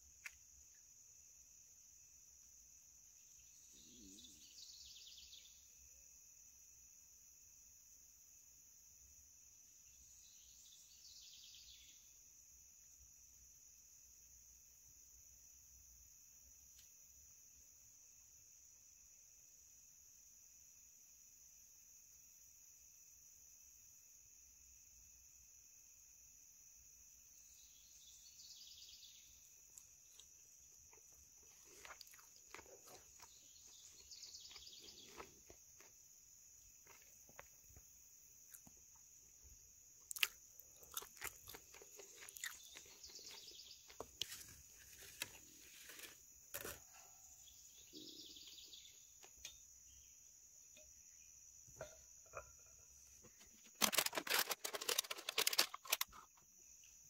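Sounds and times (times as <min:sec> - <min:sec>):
crickets chirping: 0:00.0 - 0:57.0
bird chirps: 0:03.2 - 0:05.6, 0:31.8 - 0:35.4, 0:41.7 - 0:44.5, 0:46.9 - 0:50.2
items clattering: 0:53.4 - 0:56.3.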